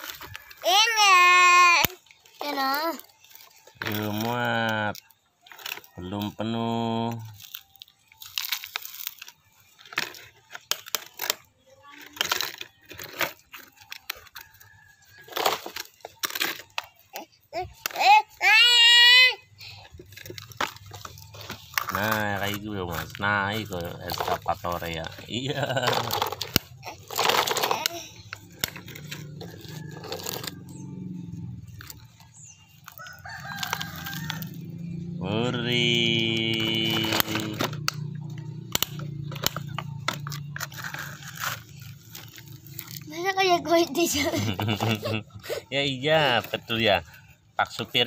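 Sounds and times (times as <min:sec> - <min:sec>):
rooster crowing: 0:32.9 - 0:34.8.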